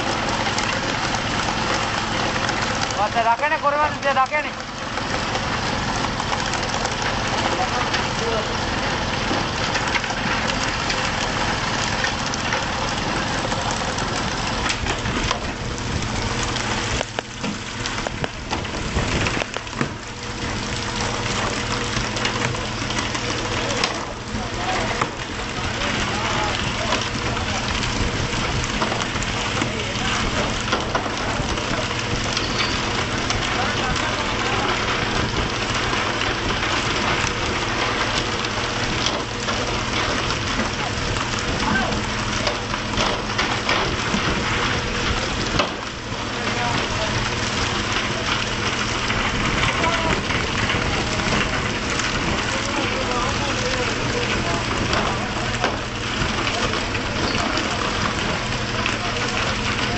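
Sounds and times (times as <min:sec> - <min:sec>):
boat engine running: 0:00.0 - 0:59.9
water spray and splashing: 0:00.0 - 0:59.9.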